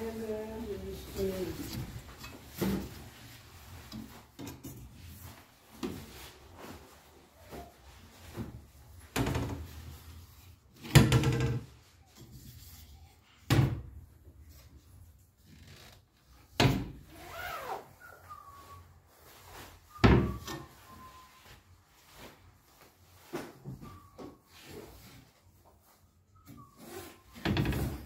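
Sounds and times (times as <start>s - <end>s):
light rubbing of cabinet doors: 26.4s - 28.0s.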